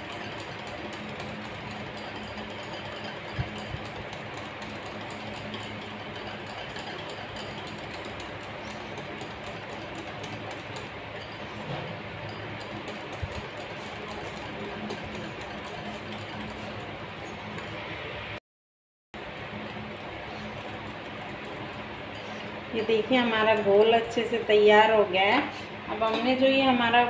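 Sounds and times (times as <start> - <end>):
whisk clicking against glass bowl: 0.0 - 11.4, 12.2 - 17.7.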